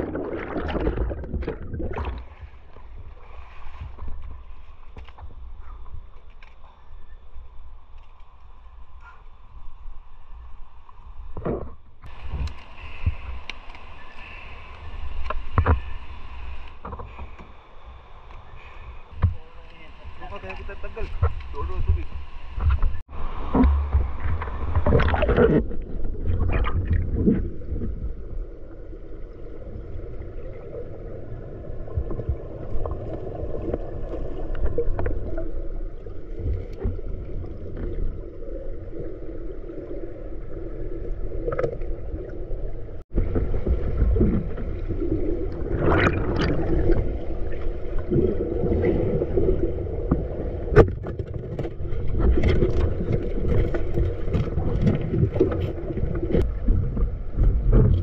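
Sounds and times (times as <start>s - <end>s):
underwater water rumble: 0.0s - 58.0s
underwater clicks and knocks: 21.1s - 27.9s, 50.0s - 58.0s.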